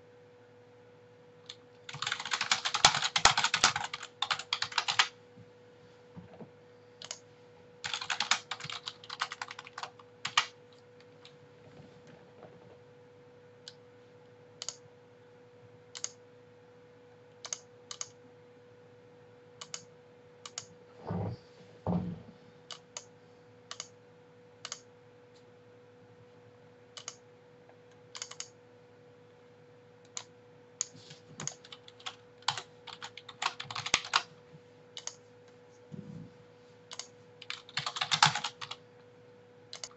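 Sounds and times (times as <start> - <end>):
faint steady hum: 0.0 - 39.9
typing on computer keyboard: 1.5 - 5.1, 7.8 - 10.6, 17.4 - 18.1, 27.0 - 27.2, 28.1 - 28.5, 31.4 - 34.3, 35.0 - 35.2, 36.9 - 38.8.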